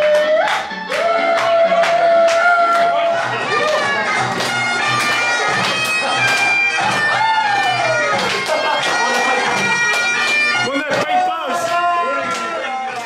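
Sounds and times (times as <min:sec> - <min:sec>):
bagpipes playing a tune: 0:02.9 - 0:11.0.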